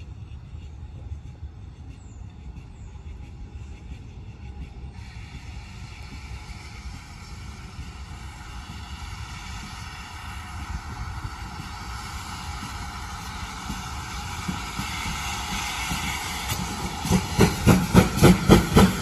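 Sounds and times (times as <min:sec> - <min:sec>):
steam locomotive hiss and rumble: 0:00.0 - 0:19.0.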